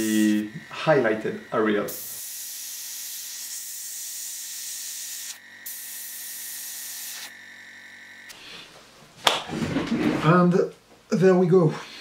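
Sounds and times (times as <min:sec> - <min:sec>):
airbrush hissing: 0:00.0 - 0:07.4, 0:08.3 - 0:08.7.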